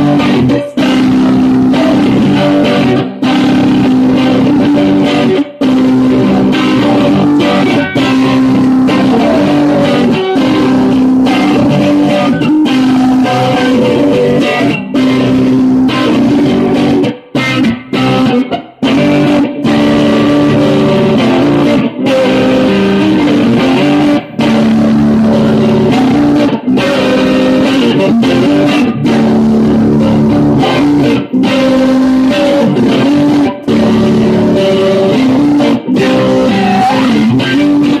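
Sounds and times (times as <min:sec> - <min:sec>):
man singing: 0:00.0 - 0:03.1, 0:06.2 - 0:15.2
electric guitar: 0:00.0 - 0:38.0.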